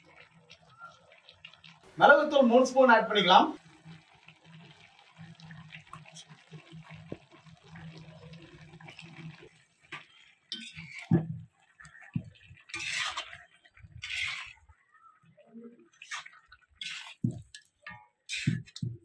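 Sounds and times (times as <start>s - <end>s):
spatula scraping and squishing food: 10.0s - 11.3s, 12.6s - 14.7s, 16.0s - 17.7s, 18.3s - 18.9s.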